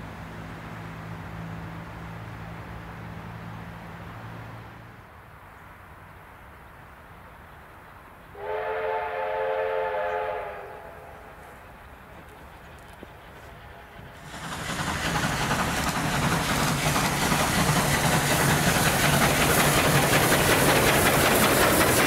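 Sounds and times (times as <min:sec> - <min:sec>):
steam locomotive whistle blast: 0:08.4 - 0:11.4.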